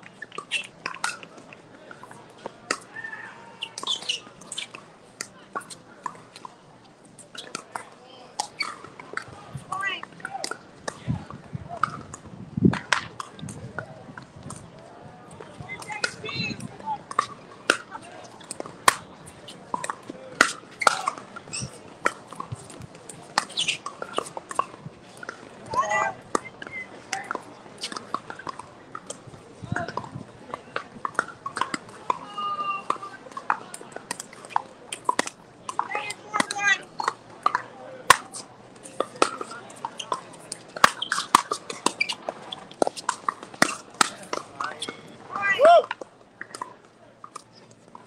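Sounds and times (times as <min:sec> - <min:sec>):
high-pitched shoe squeaks: 0:03.4 - 0:04.8, 0:08.4 - 0:08.8, 0:20.7 - 0:21.8, 0:23.4 - 0:24.2, 0:40.8 - 0:43.8
paddles striking plastic balls: 0:15.8 - 0:32.3, 0:32.9 - 0:45.1.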